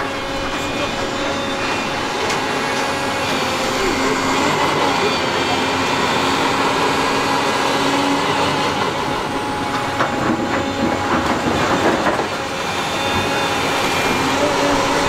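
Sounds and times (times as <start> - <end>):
excavator engine drone: 0.0 - 15.0.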